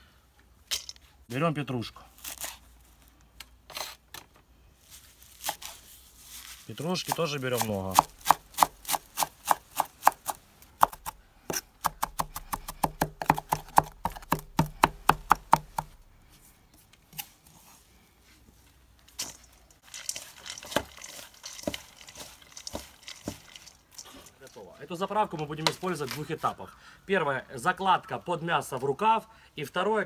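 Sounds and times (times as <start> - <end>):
herbs rustling in steel bowl: 4.8 - 9.4, 18.6 - 26.6
knife chopping on wooden board: 7.1 - 16.0.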